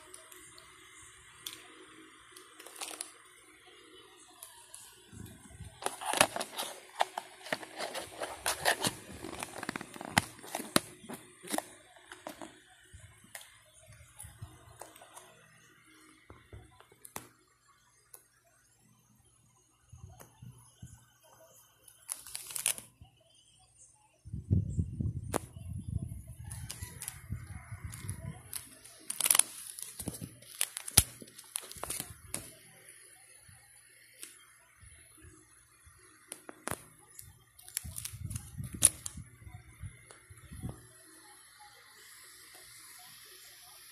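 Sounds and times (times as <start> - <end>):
plastic crinkling: 2.4 - 3.2, 4.4 - 12.6, 22.0 - 22.9, 27.9 - 32.6, 37.6 - 39.2.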